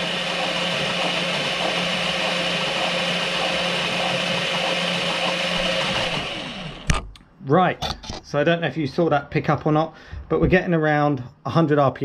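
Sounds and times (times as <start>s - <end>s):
electric motor whine: 0.0s - 7.0s.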